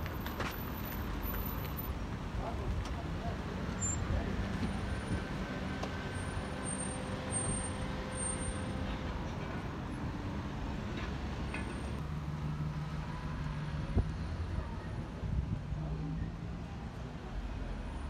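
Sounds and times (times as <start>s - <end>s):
vehicle engines humming: 0.0s - 18.0s.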